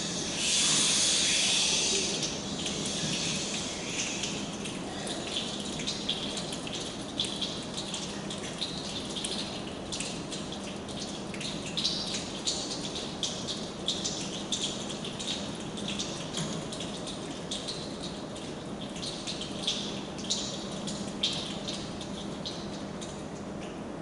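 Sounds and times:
steady rustling hiss: 0.0s - 8.1s.

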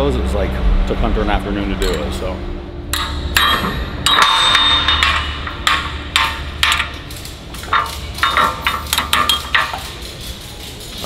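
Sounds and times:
metal hardware clattering: 1.8s - 2.1s, 2.9s - 11.0s
sharp metal knocks and clinks: 2.9s - 11.0s.

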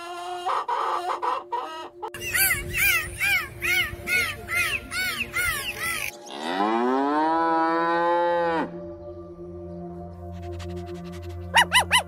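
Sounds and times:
cow mooing: 6.3s - 8.8s.

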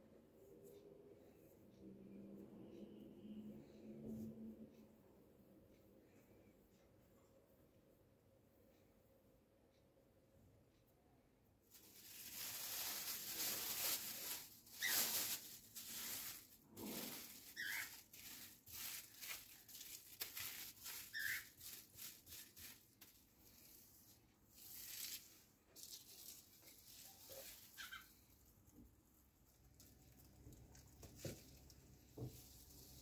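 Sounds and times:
plastic bag crinkling: 11.7s - 28.0s.

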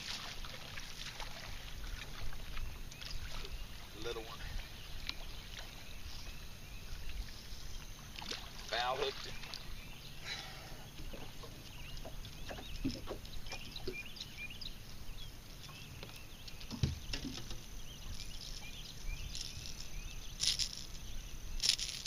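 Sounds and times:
high chirping calls: 17.8s - 22.0s.

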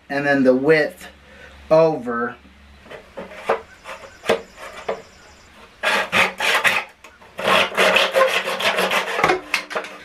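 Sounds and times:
hand saw cutting plastic pipe: 2.9s - 10.0s.

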